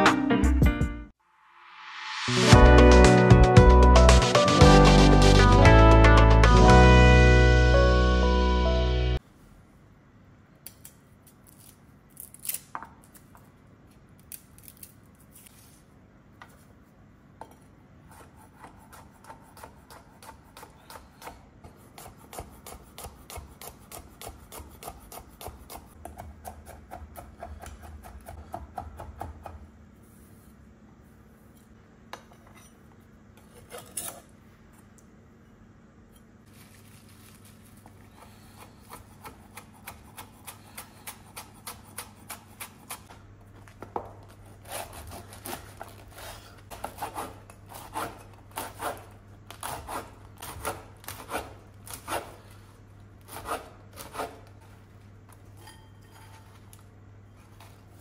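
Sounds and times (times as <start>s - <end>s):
bread knife sawing crusty bread: 44.5s - 52.6s, 53.3s - 54.5s.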